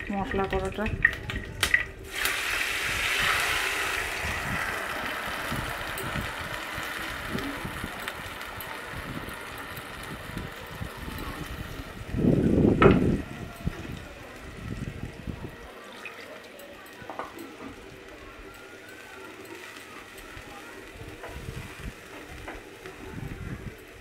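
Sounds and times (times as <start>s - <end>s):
paste sizzling in hot oil: 1.7s - 14.6s.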